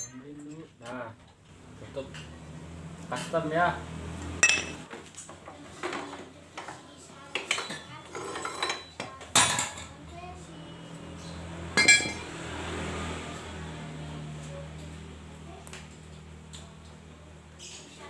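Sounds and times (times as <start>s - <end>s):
metal tools and parts clanking: 0.0s - 0.7s, 4.4s - 4.9s, 7.5s - 9.9s, 11.8s - 12.3s.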